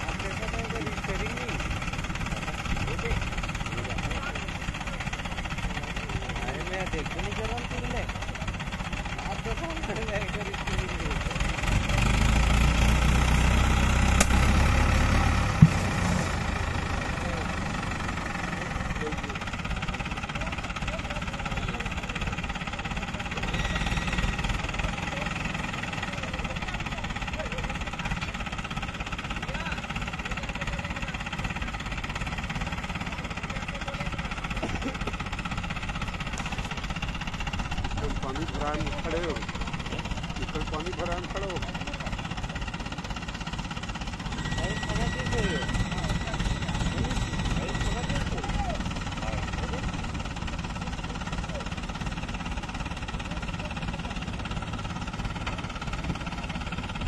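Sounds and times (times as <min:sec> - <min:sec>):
diesel engine idling: 0:00.0 - 0:57.0
sharp click: 0:14.2 - 0:14.4.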